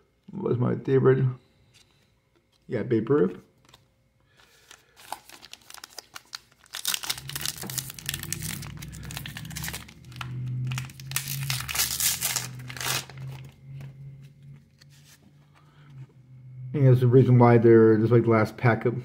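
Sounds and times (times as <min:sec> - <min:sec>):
plastic wrapper crinkling: 0:03.6 - 0:15.3.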